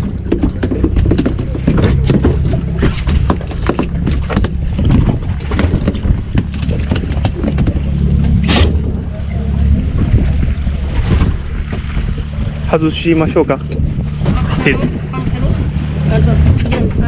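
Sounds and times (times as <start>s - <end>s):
fish flopping on rubber mat: 0.0s - 9.0s
boat engine humming: 0.0s - 17.0s.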